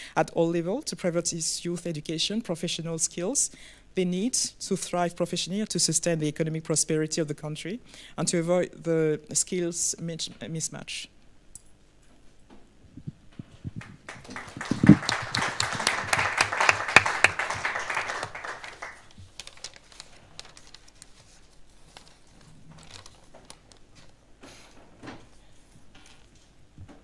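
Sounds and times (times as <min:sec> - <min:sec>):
audience applauding: 0:13.8 - 0:19.1.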